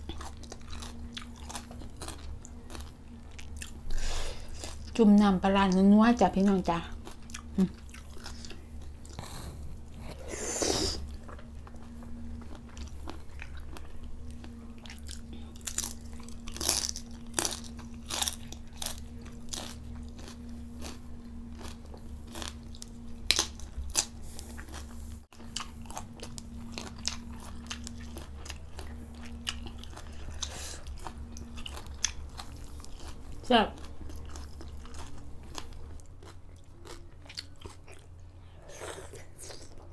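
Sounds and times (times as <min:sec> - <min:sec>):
chewing and mouth smacking: 0:00.0 - 0:03.8, 0:21.6 - 0:39.9
low steady hum: 0:00.0 - 0:39.9.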